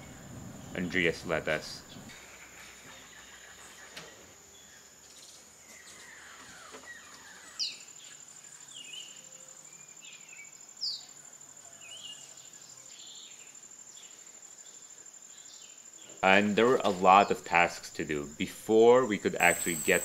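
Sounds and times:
bird calls: 0.0 - 9.4
high-pitched insect trill: 19.1 - 20.0.

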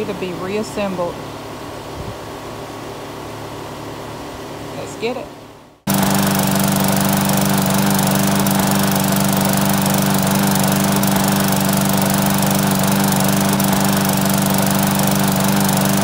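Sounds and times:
lawn mower engine running: 5.9 - 16.0.

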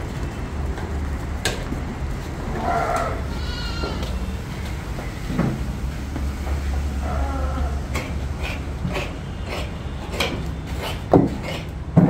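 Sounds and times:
goats bleating: 2.5 - 4.3.

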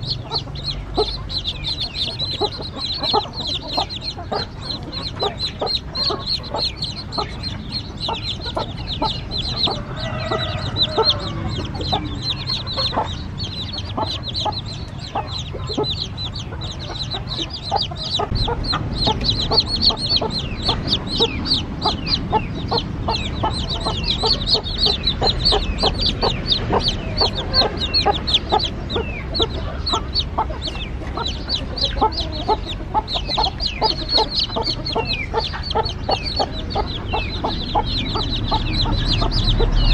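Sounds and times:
chicks peeping: 0.0 - 39.9
low rumble: 15.4 - 39.9.

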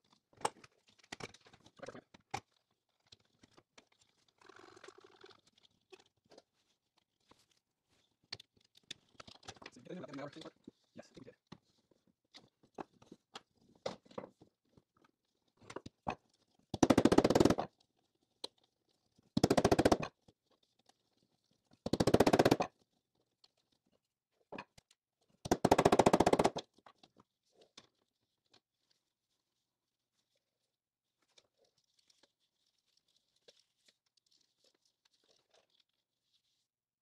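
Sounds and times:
faint clicks and handling noise: 0.0 - 16.7, 26.7 - 36.8.

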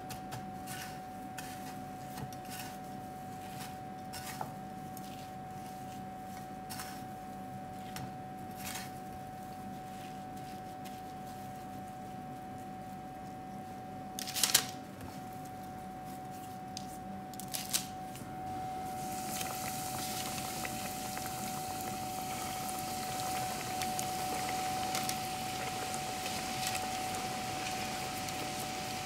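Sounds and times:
cutlets sizzling in hot oil: 18.9 - 29.0.

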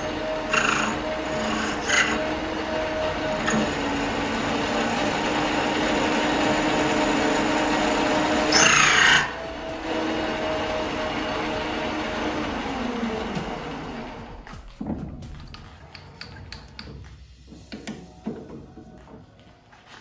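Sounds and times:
metal lathe humming: 0.0 - 14.4
high screech: 8.4 - 9.4.

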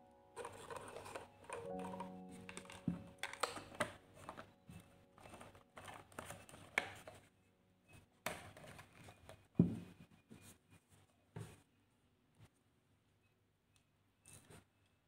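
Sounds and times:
sticks knocking in plastic jar: 0.4 - 4.4
plastic screw cap turning: 0.4 - 4.5, 5.2 - 7.2.

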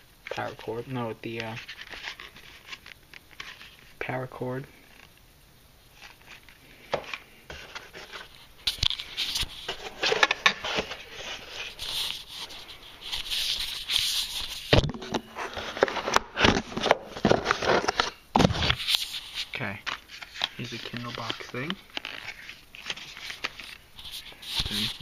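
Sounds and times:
cardboard box rustling and scraping: 7.5 - 8.4, 9.0 - 19.6.

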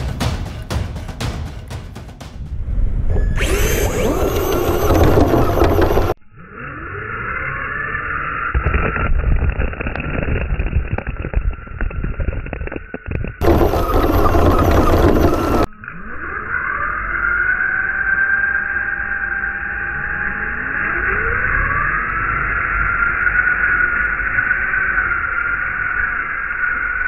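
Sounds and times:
electric motors whining: 3.1 - 9.0, 13.4 - 19.8
tyres churning snow: 3.4 - 6.2, 13.4 - 15.7.

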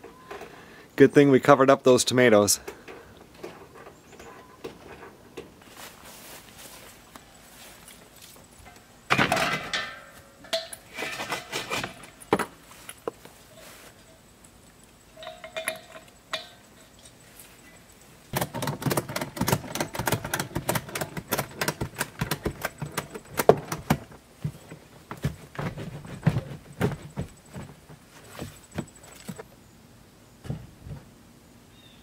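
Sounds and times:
metal cylinders clanking: 8.6 - 12.3, 15.1 - 24.9
rattling clicks: 18.3 - 24.7.

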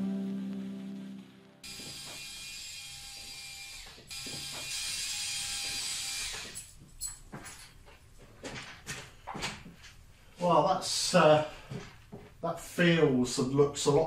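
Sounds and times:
cordless drill whining: 1.6 - 6.8.

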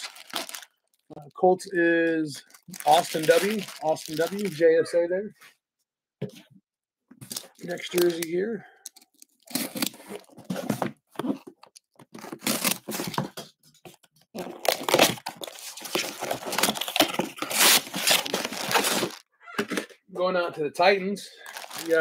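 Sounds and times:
packing tape being slit and torn: 9.4 - 10.4, 12.1 - 13.2, 14.4 - 19.2
cardboard scraping and crinkling: 9.5 - 19.8.

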